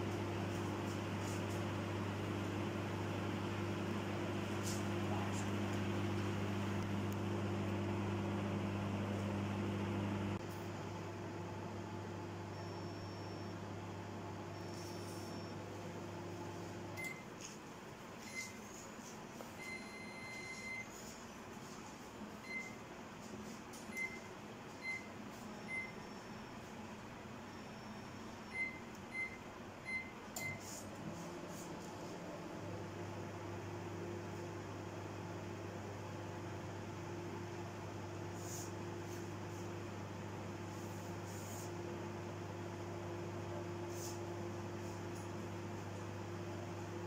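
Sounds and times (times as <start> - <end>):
microwave fan whirring: 0.0 - 47.0
microwave oven electrical hum: 0.0 - 47.0
microwave keypad beeps: 19.6 - 20.9, 22.4 - 22.8, 23.9 - 26.5, 27.5 - 30.6.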